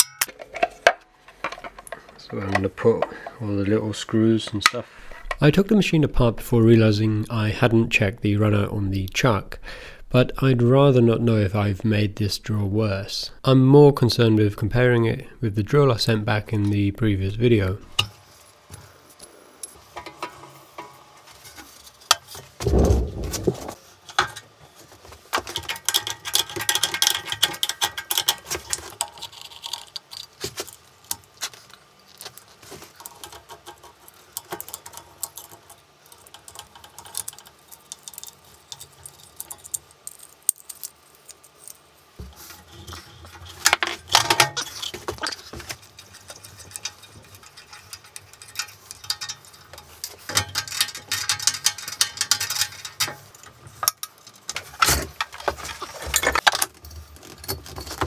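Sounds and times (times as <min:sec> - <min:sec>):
metal parts and tools clinking: 0:00.0 - 0:02.7, 0:25.4 - 0:58.0.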